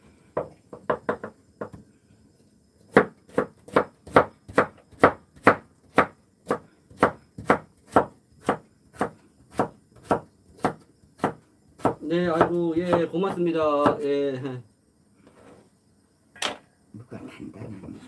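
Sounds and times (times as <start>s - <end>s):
knife chopping on wooden board: 2.9s - 14.0s.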